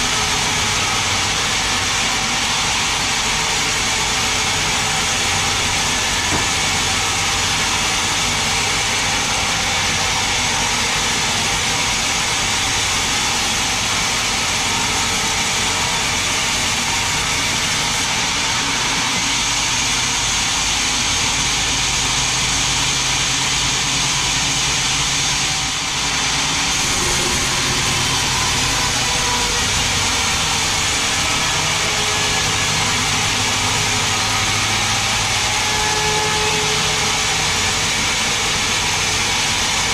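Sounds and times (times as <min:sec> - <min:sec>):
band saw cutting log: 0:00.0 - 0:39.9
steady hum: 0:22.4 - 0:39.8.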